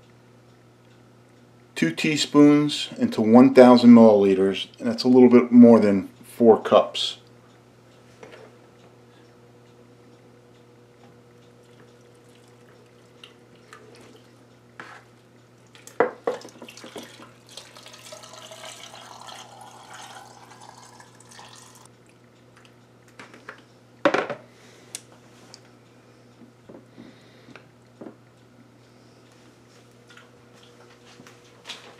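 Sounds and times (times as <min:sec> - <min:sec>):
brine pouring into glass jar: 0:16.7 - 0:21.9.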